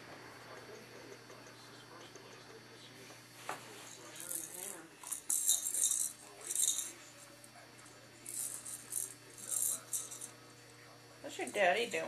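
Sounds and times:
baby rattle shaken: 4.0 - 7.0, 8.2 - 10.3.

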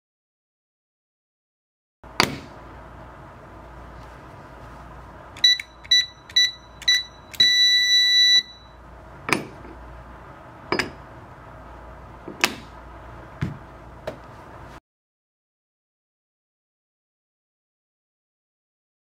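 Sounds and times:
keypad beeping: 5.4 - 8.8
long keypad beep: 5.4 - 8.8.

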